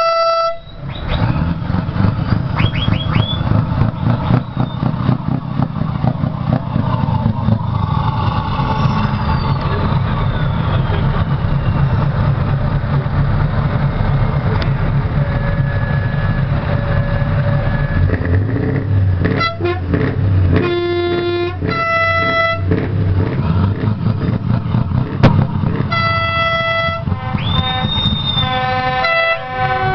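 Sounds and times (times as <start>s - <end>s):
horn blasts: 0.0s - 0.9s, 19.2s - 23.3s, 25.7s - 29.9s
diesel truck engine running: 0.0s - 29.9s.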